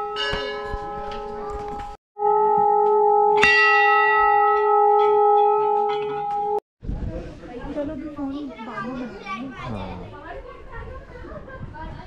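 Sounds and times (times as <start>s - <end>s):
metal bells ringing: 0.0s - 1.4s, 3.4s - 6.6s.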